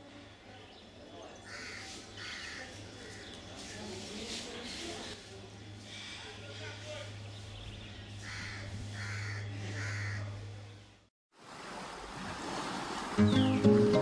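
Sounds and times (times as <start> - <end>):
crow cawing: 1.5 - 3.3, 8.2 - 10.4
plucked guitar music: 13.2 - 14.0.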